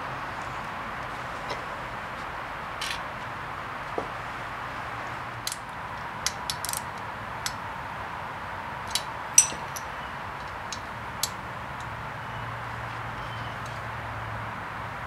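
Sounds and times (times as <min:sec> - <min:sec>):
hand tools clicking on metal: 0:05.4 - 0:07.6, 0:08.9 - 0:11.9.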